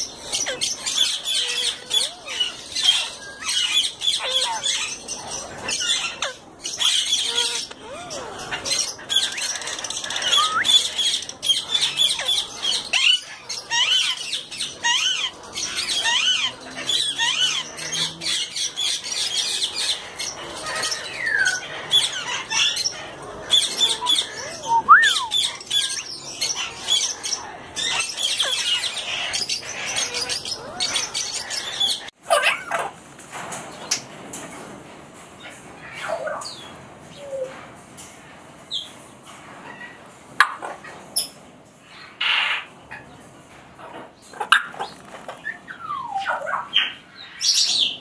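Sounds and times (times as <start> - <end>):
parakeets chattering and screeching: 0.0 - 33.0.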